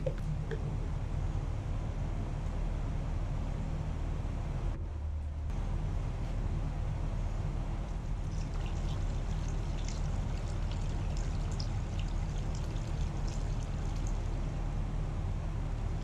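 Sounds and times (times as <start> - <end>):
heater humming: 0.0 - 16.0
liquid pouring into plastic cup: 8.2 - 14.2.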